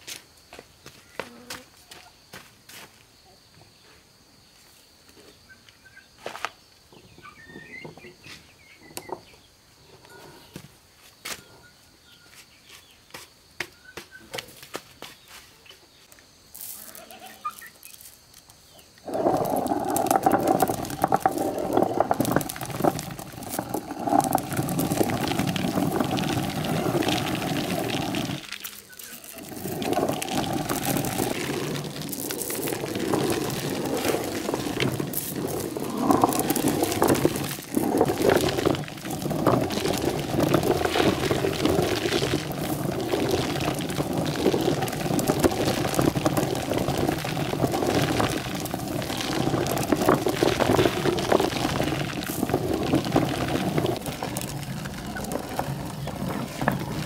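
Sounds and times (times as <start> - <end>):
grinding mill running: 19.0 - 57.0.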